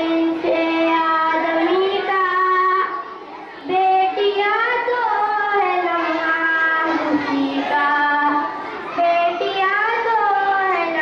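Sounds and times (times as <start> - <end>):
boy singing into a microphone: 0.0 - 11.0.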